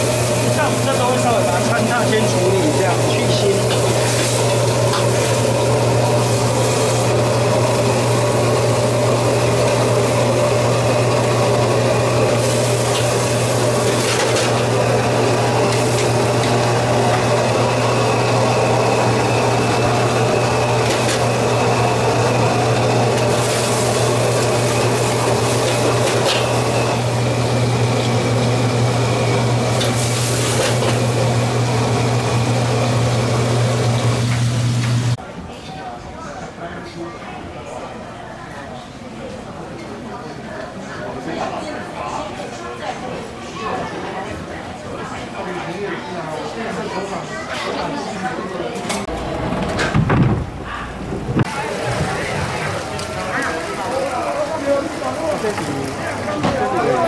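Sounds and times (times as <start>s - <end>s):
machine humming: 0.0s - 35.2s, 49.0s - 57.0s.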